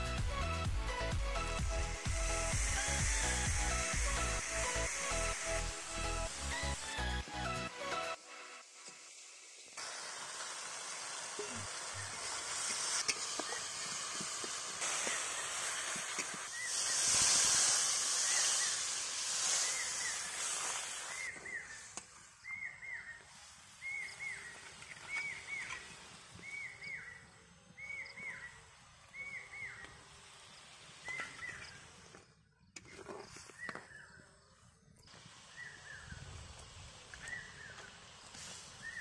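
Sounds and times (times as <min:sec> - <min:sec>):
water sizzling in hot pan: 0:01.7 - 0:27.1, 0:35.1 - 0:39.0.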